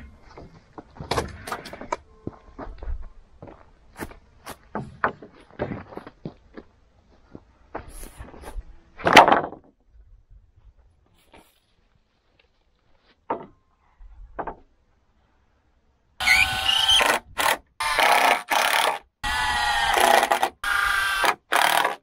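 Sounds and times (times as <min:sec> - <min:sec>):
power drill whirring: 0:16.2 - 0:22.0.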